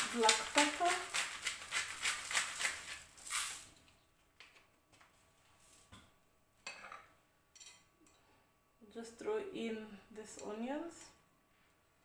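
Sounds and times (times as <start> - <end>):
pepper mill grinding: 0.0 - 3.7.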